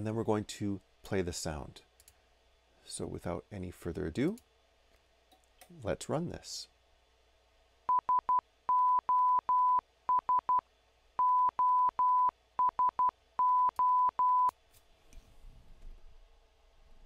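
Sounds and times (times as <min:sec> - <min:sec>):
morse code sine-wave beeps: 0:07.9 - 0:10.6, 0:11.2 - 0:14.5.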